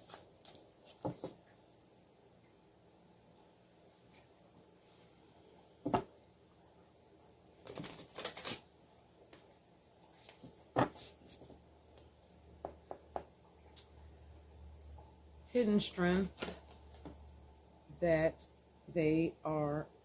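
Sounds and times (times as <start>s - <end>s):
knock on table: 5.8s - 6.1s
cards rustling: 7.6s - 8.7s, 16.2s - 17.2s.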